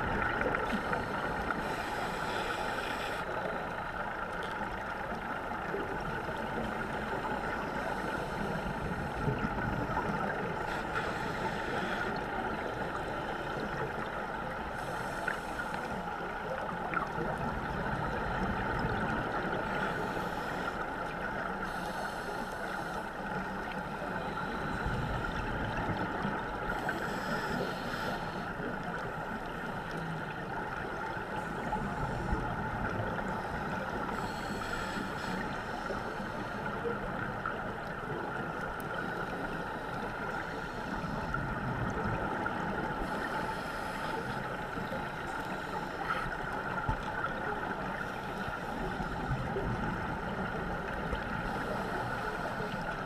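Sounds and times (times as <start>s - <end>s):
scuba exhaust bubbles hissing: 0.0s - 3.8s, 5.6s - 53.0s
constant hum: 0.0s - 53.0s
muffled underwater rush: 0.0s - 53.0s.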